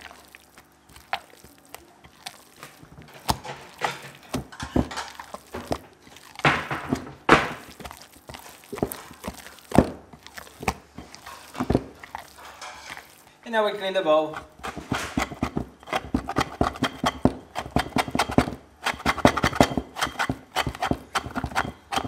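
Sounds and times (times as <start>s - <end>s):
wet dough squelching and slapping: 0.0s - 13.4s, 14.3s - 22.0s.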